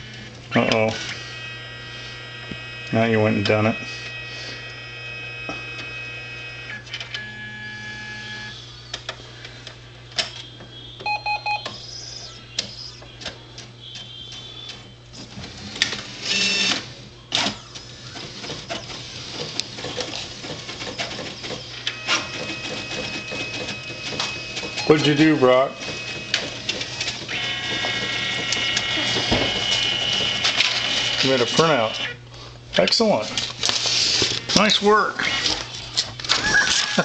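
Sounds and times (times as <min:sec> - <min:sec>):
printer mechanism whirring and clicking: 0:00.0 - 0:32.2, 0:32.8 - 0:37.0
mains hum: 0:00.0 - 0:37.0
printer control panel beeping: 0:02.6 - 0:08.5, 0:10.2 - 0:11.8, 0:16.3 - 0:19.0, 0:19.7 - 0:32.2.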